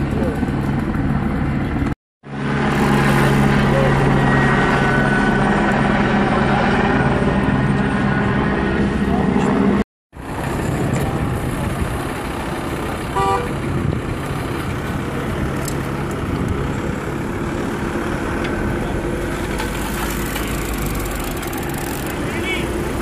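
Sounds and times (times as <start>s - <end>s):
vehicles idling: 0.0s - 23.0s
vehicle horn toot: 13.1s - 13.6s.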